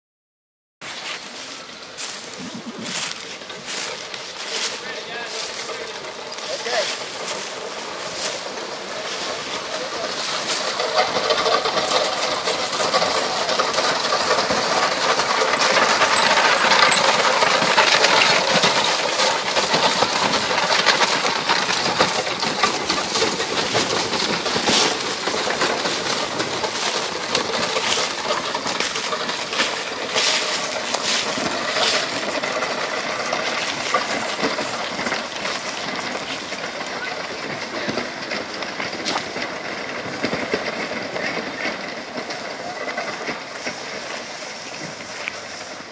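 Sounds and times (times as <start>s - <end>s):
hooves clopping: 0.8s - 45.9s
wooden wheels crunching on gravel: 0.8s - 45.9s
jingling metal: 2.8s - 38.6s.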